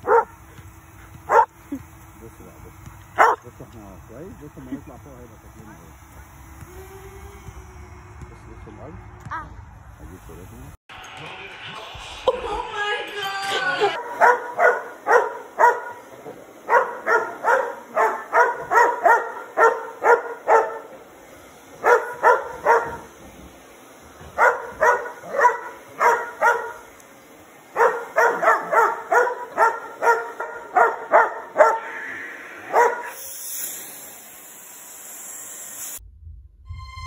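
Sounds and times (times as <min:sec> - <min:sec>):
dog barking: 0:00.0 - 0:00.4, 0:01.3 - 0:01.6, 0:03.2 - 0:03.5, 0:14.0 - 0:21.0, 0:21.8 - 0:23.1, 0:24.3 - 0:26.9, 0:27.8 - 0:31.9, 0:32.7 - 0:33.2.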